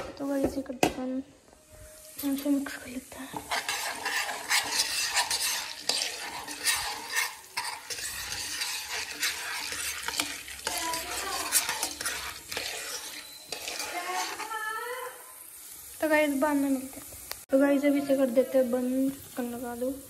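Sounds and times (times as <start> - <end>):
oil sizzling: 0.0 - 20.0
metal spoon scraping a pot: 3.3 - 14.6.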